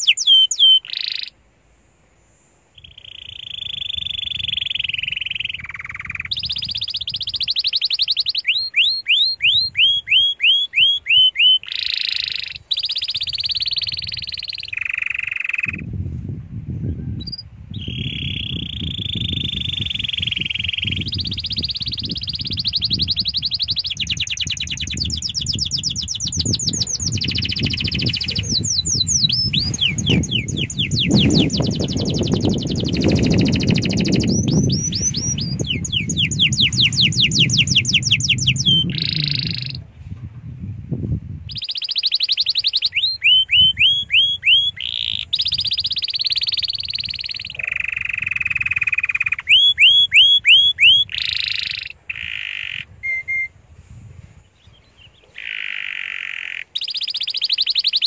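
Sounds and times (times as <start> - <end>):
canary singing trills: 0.0 - 1.4, 2.7 - 15.9, 16.9 - 39.9, 41.4 - 53.6, 54.4 - 58.0
low rumbling noise: 15.8 - 41.6.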